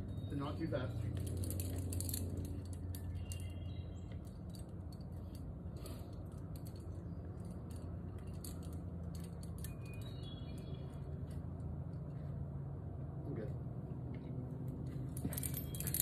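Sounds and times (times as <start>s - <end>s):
carabiners clinking: 0.0s - 12.2s, 14.8s - 16.0s.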